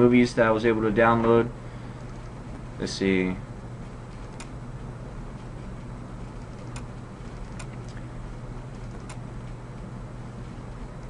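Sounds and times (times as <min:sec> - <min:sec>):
low room hum: 0:00.0 - 0:11.0
computer mouse clicks: 0:04.1 - 0:04.6, 0:06.2 - 0:08.0, 0:08.7 - 0:09.2.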